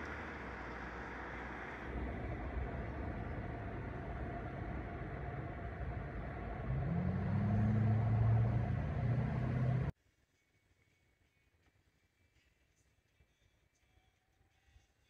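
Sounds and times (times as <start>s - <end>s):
steady rushing noise: 0.0s - 8.8s
engine running: 0.0s - 9.9s.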